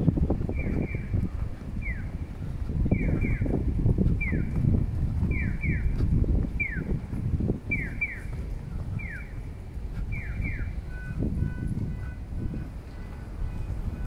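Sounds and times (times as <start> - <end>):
low rumble: 0.0 - 14.0
short steady beeps: 10.2 - 14.0.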